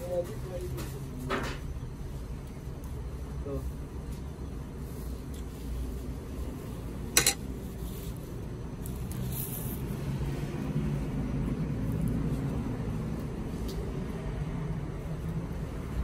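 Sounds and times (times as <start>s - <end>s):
spoon clinking on metal platter: 7.2s - 7.4s.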